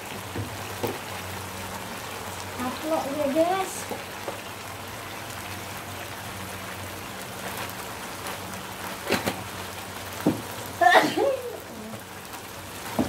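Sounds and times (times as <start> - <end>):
sauce sizzling in a wok: 0.0 - 13.0.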